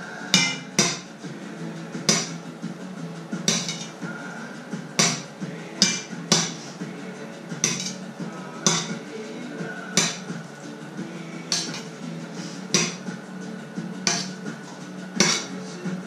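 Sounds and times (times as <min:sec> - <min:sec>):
low steady hum: 0:00.0 - 0:16.0
metal fork clinking against pot: 0:03.5 - 0:04.0, 0:07.6 - 0:08.0, 0:11.5 - 0:11.9, 0:14.1 - 0:14.4, 0:15.2 - 0:15.5.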